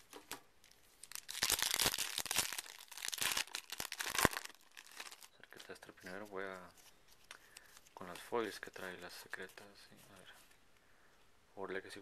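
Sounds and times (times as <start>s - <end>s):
wrapper snapping: 0.3s - 5.3s
foil wrapper crinkling and tearing: 0.6s - 6.0s.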